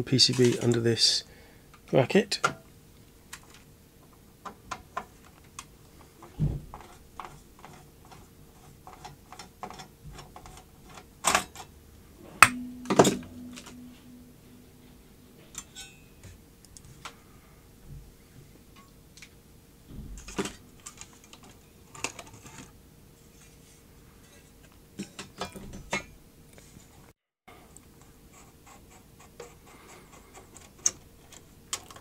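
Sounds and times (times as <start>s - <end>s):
faint steady hum: 0.0s - 25.3s
ringing metallic knocks: 12.2s - 16.1s.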